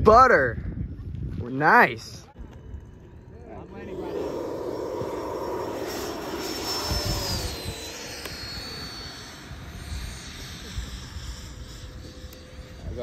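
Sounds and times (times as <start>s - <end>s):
electric ducted fans whining: 1.7s - 13.0s
rushing air: 3.9s - 10.0s.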